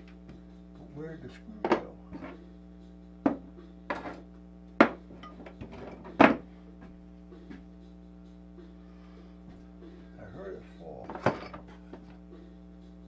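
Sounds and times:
metal tools clattering on workbench: 11.1 - 11.6.

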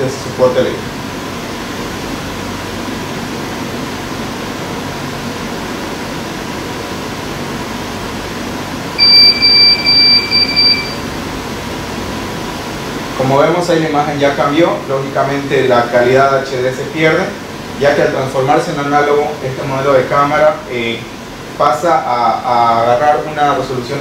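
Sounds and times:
room hum: 0.0 - 24.0
short high-pitched electronic beeps: 9.0 - 11.1.

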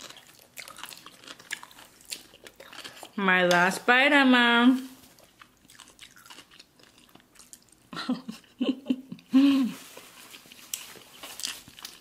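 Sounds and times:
person chewing and slurping: 0.0 - 3.2, 5.0 - 7.8, 9.8 - 12.0.

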